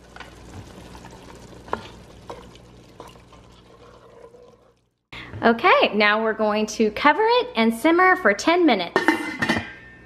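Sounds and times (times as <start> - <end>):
stew being stirred in a pot: 0.0 - 5.0
faint sizzle: 0.0 - 5.4.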